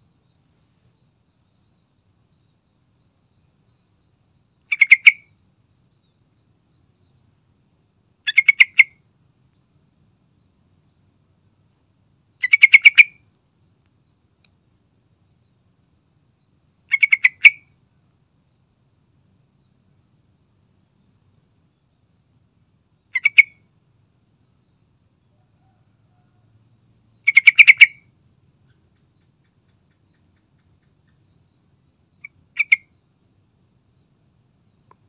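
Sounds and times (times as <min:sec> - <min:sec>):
bulbul calling: 0:03.2 - 0:06.1, 0:08.2 - 0:09.0, 0:12.4 - 0:13.3, 0:16.8 - 0:17.8, 0:23.1 - 0:23.6, 0:27.2 - 0:33.0.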